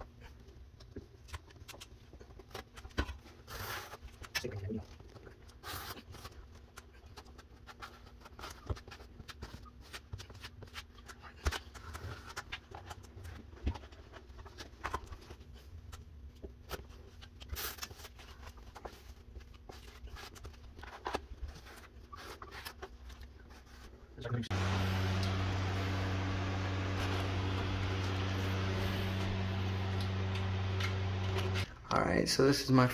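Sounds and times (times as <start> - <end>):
faint steady hum: 24.5 - 31.9.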